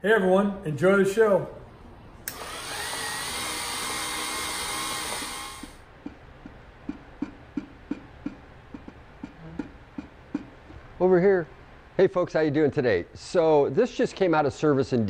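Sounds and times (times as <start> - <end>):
film camera mechanism whirring: 2.3 - 5.8.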